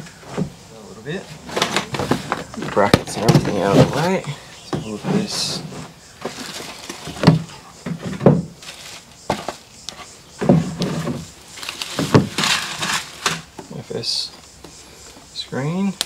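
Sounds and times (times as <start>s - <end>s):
plastic bag rustling: 5.0s - 9.7s, 10.6s - 13.5s.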